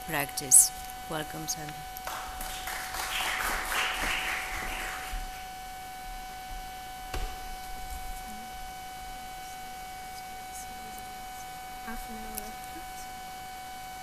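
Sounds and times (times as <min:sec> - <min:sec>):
electrical hum: 0:00.0 - 0:14.0
audience applauding: 0:02.0 - 0:05.5
single knock: 0:07.1 - 0:07.5.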